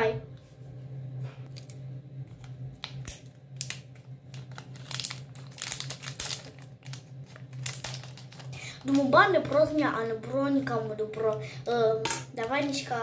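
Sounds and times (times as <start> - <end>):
wrapper crinkling: 2.8 - 9.2
scissors cutting packet: 2.9 - 9.0.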